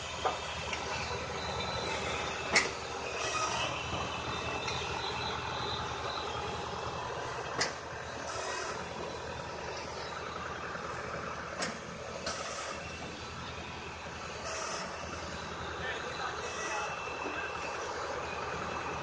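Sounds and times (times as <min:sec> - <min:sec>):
firewood processor working noise: 0:00.0 - 0:19.0
tractor diesel engine running: 0:00.0 - 0:19.0.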